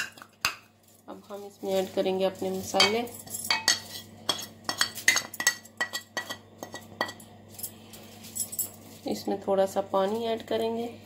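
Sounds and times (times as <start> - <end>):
spoon clinking on plate and bowl: 2.8 - 7.3.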